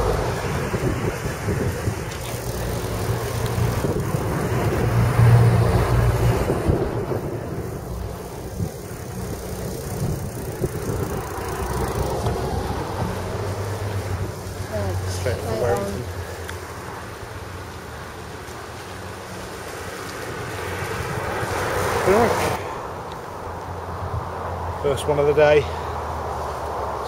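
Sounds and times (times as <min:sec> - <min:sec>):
wind buffeting microphone: 0:00.0 - 0:16.2
road traffic passing: 0:00.0 - 0:27.0.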